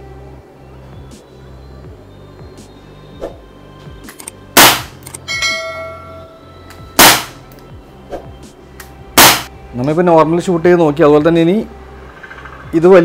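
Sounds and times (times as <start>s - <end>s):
air pistol shots: 4.1s - 5.2s, 7.0s - 7.4s, 9.2s - 9.5s
metallic ringing clang: 5.2s - 6.4s.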